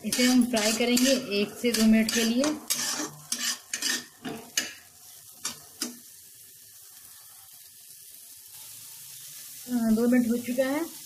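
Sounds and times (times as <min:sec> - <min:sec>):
spatula scraping a steel pan: 0:00.0 - 0:04.7
onion sizzling in oil: 0:00.0 - 0:11.0.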